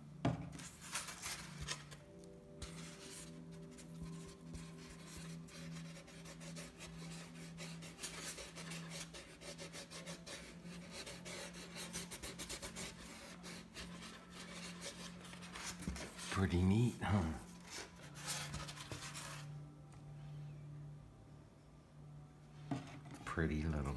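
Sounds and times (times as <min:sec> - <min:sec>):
paintbrush scrubbing rough surface: 0:02.6 - 0:16.6.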